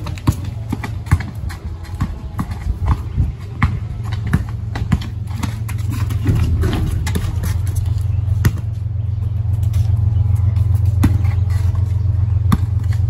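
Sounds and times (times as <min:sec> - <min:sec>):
basketball bouncing on concrete: 0:00.0 - 0:09.9, 0:10.6 - 0:13.0
low steady rumble: 0:03.8 - 0:13.0.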